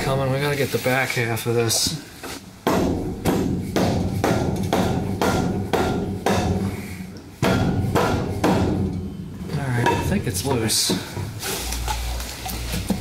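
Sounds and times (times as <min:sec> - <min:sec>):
hammer striking metal: 0:02.7 - 0:06.8, 0:07.4 - 0:09.2.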